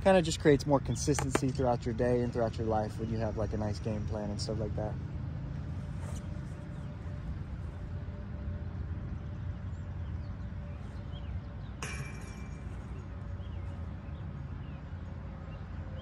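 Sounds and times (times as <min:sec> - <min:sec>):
sharp click with metallic ring: 0:11.8 - 0:13.0.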